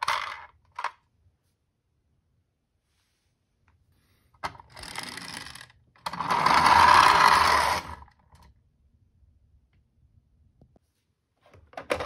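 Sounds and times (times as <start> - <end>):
toy car gears and wheels whirring: 0.0 - 0.9, 4.4 - 8.5.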